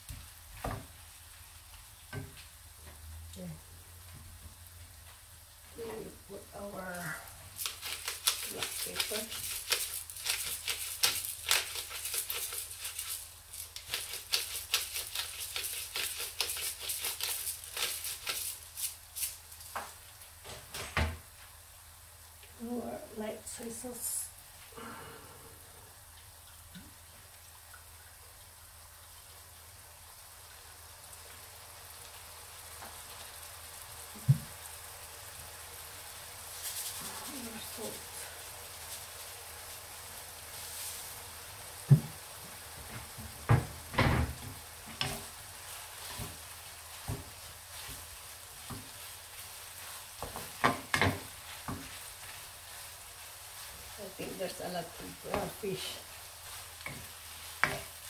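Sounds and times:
hand grinder mill crunchy clicking: 7.6 - 19.3
seasoning shaker rattling: 7.6 - 19.7, 36.1 - 42.2, 45.0 - 58.0.

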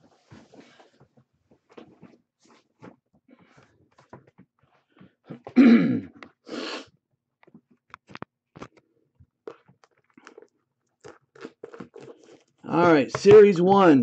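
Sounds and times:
person coughing: 5.5 - 6.2.

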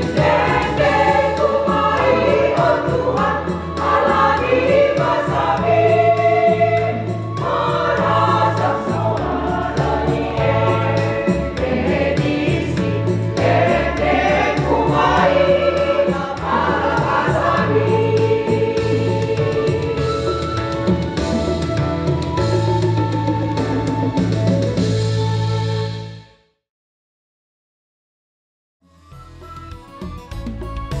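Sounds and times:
women's choir singing a hymn: 0.0 - 20.3.

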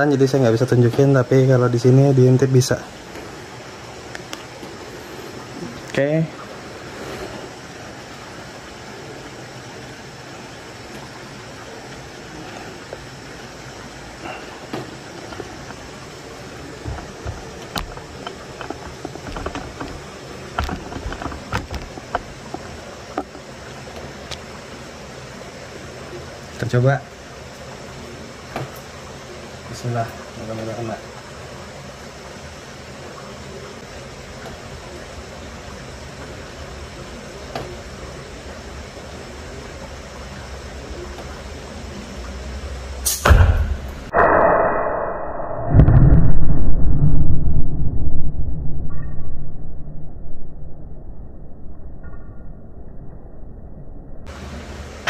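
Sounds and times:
steady background hiss: 0.0 - 44.2, 53.2 - 55.0
handling clicks and knocks: 16.8 - 23.4
slingshot snap: 43.0 - 43.8.

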